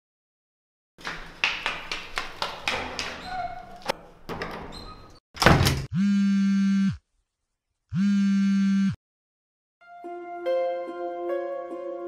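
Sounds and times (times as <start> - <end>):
harsh electronic buzzes: 5.9 - 7.0, 7.9 - 9.0.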